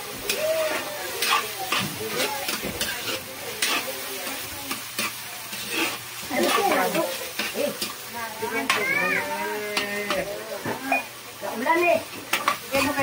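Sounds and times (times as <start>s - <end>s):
chicken sizzling in a wok: 0.0s - 13.0s
stirring knocks in a pan: 0.2s - 8.0s.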